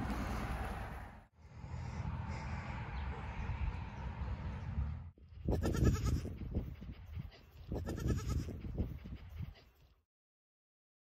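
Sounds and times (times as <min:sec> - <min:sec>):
goat kid bleating: 0:05.5 - 0:06.4, 0:07.7 - 0:08.7.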